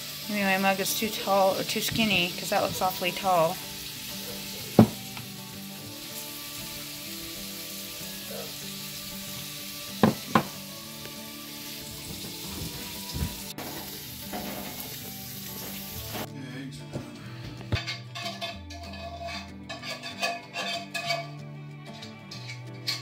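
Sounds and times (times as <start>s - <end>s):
ceramic mug knocking: 4.8s - 5.0s, 10.0s - 10.6s
soft thump: 4.8s - 5.0s.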